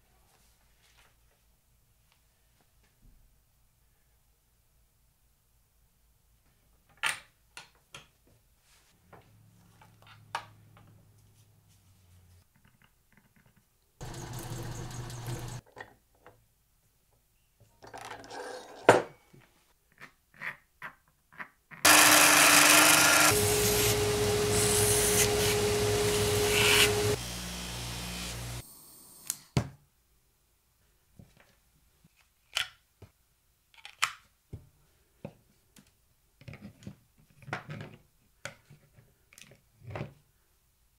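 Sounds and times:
belt grinder running: 0:14.0 - 0:15.6, 0:21.9 - 0:28.6.

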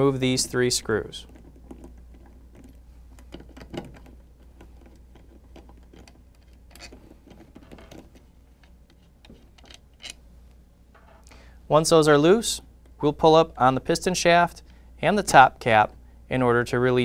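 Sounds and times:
screwdriver clicking and scraping: 0:01.3 - 0:10.2.

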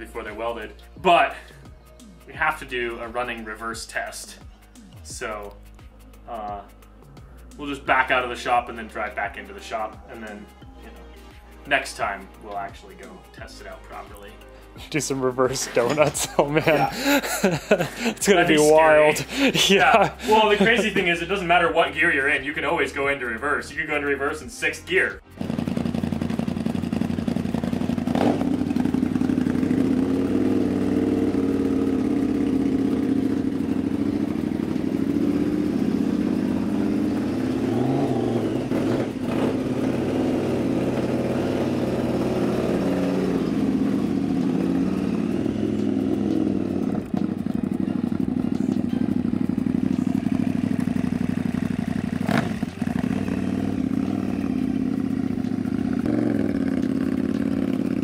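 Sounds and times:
kart engine running: 0:25.4 - 0:58.0
sharp clacks: 0:45.5 - 0:53.2.

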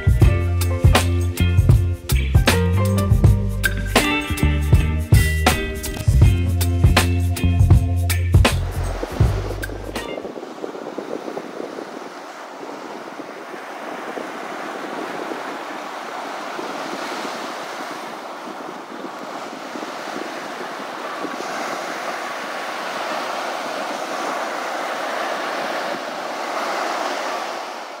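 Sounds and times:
wind: 0:00.0 - 0:28.0
ocean waves washing onto beach: 0:08.4 - 0:28.0.

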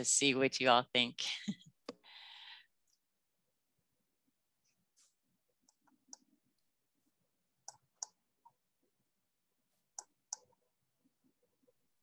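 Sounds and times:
faint computer mouse clicks: 0:10.0 - 0:10.5.

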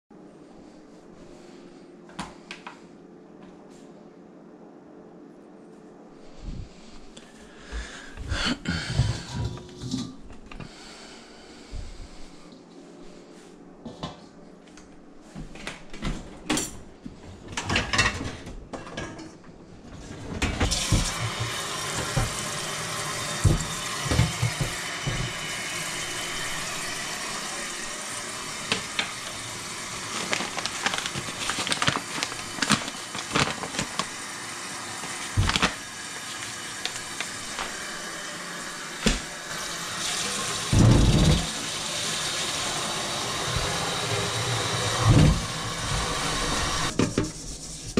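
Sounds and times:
water running from faucet: 0:20.6 - 0:47.8.

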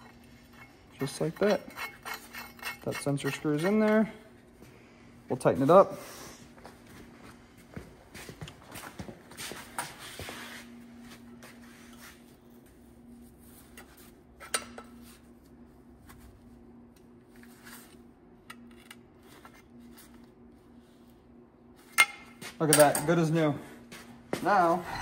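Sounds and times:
hand tools clinking on metal: 0:00.0 - 0:04.2, 0:22.0 - 0:23.4
faint hum: 0:00.0 - 0:25.0.

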